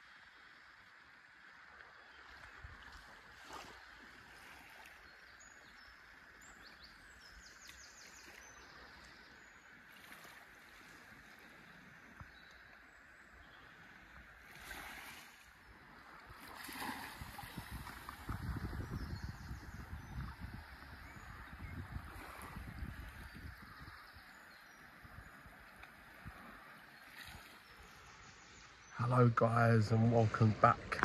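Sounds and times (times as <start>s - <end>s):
small waves lapping on sand: 0.0s - 29.0s
birds chirping: 4.8s - 14.5s, 15.4s - 31.0s
wind rumble on microphone: 15.8s - 26.8s.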